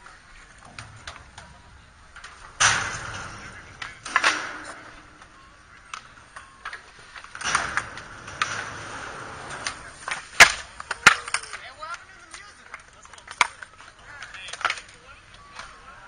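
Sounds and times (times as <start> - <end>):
skateboard clacks: 0.0 - 16.0
skateboard wheels rolling on concrete: 0.0 - 16.0.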